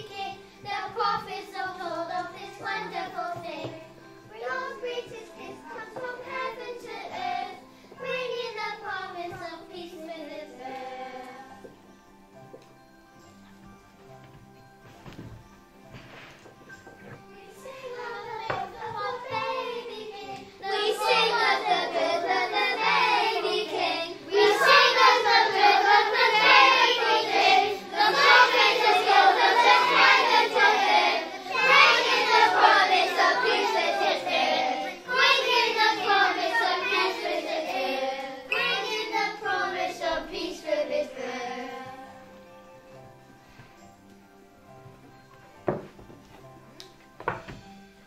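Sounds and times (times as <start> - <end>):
children singing: 0.0 - 11.8, 16.9 - 42.4
backing track music: 0.0 - 48.0.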